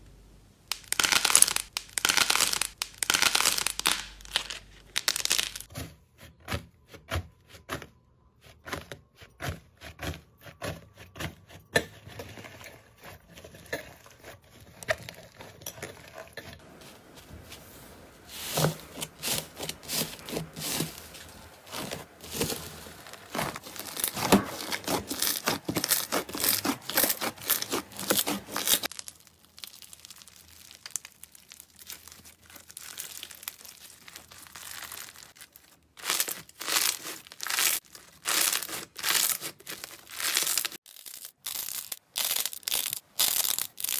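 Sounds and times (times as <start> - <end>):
slime crackling and tearing: 0.7 - 5.7, 18.6 - 43.9.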